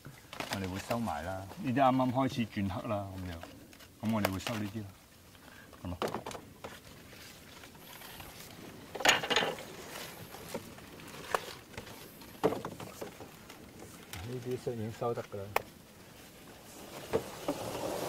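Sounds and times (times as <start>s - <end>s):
bamboo poles clicking and knocking: 3.0s - 4.8s, 5.9s - 6.8s, 8.9s - 9.7s, 10.4s - 14.4s, 15.2s - 15.8s.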